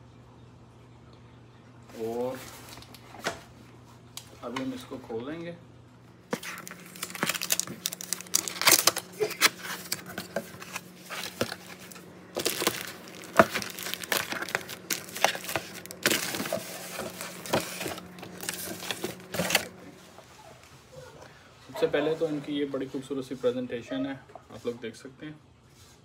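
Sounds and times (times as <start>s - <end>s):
cardboard box being opened: 6.3s - 19.7s
plastic wrap crinkling: 6.3s - 20.0s.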